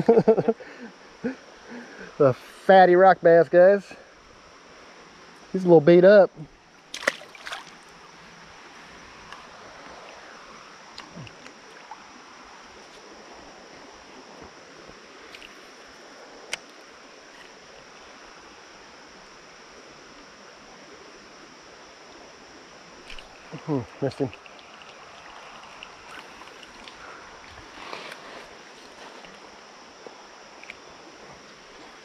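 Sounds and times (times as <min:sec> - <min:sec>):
creek flowing over rocks: 0:06.6 - 0:32.0
water splash: 0:06.9 - 0:07.9, 0:23.0 - 0:26.9
faint ticks: 0:24.2 - 0:28.2, 0:30.0 - 0:30.8.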